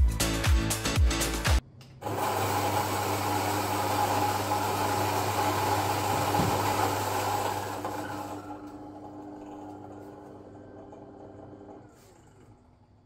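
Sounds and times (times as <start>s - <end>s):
electric coffee grinder whirring: 2.0s - 12.2s.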